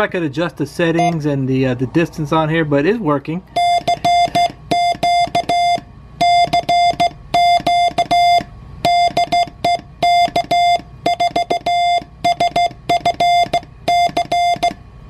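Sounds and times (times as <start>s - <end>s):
morse code tone: 3.5s - 14.8s.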